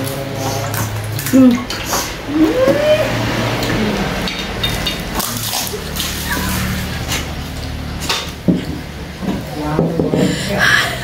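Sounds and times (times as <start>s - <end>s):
wet squishing and chewing: 0.0s - 9.0s.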